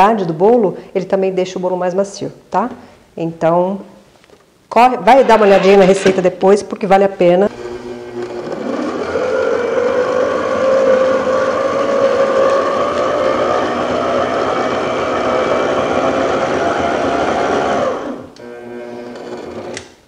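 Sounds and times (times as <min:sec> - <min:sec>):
stand mixer motor whine: 0:07.5 - 0:19.8.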